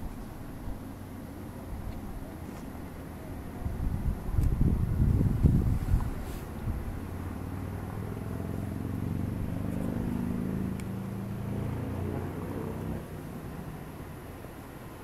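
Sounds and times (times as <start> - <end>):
engine passing by: 4.6 - 15.0.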